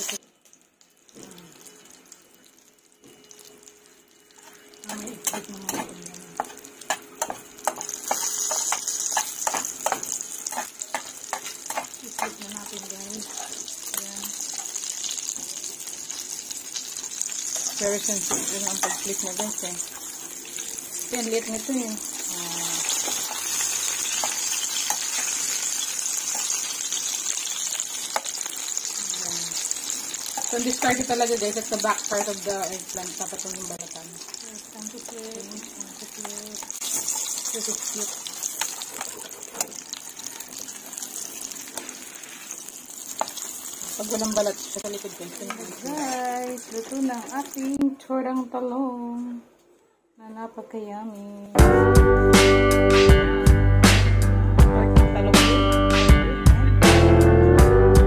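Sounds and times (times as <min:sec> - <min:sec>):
oil sizzling in a frying pan: 0:00.0 - 0:47.8
spatula scraping a pan: 0:06.4 - 0:12.4.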